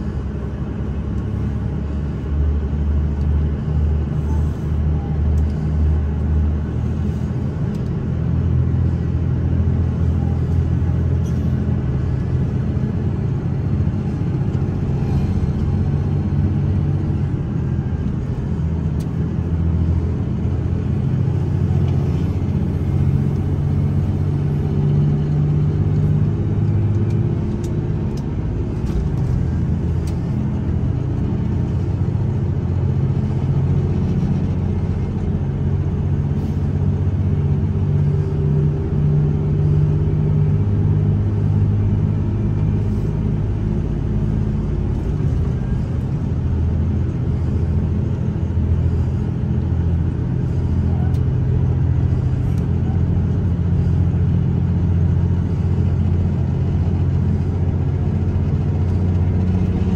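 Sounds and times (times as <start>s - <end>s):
train cabin rumble: 41.2s - 59.9s.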